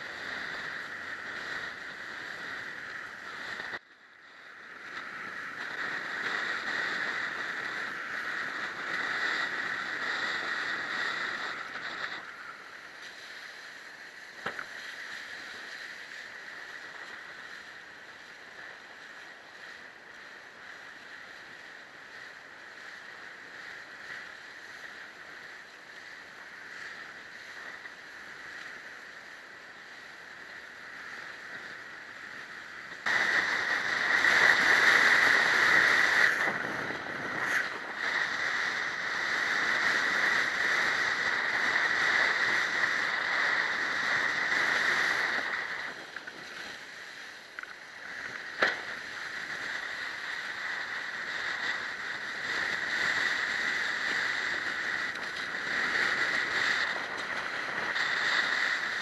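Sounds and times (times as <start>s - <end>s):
wind and water rushing: 0.0s - 59.0s
wind on microphone: 30.6s - 59.0s.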